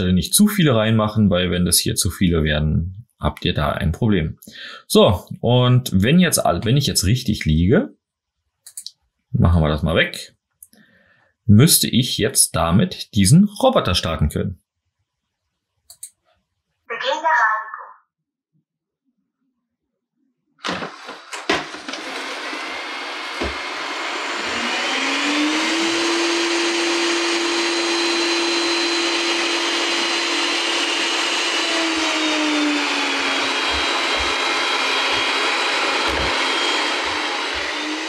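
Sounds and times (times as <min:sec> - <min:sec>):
vacuum suction fan whine: 0:20.8 - 0:38.0.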